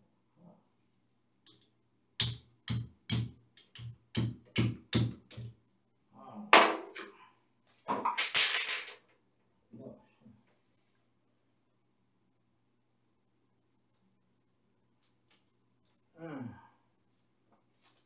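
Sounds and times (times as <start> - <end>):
hammer tapping tool into wall: 2.2 - 5.6.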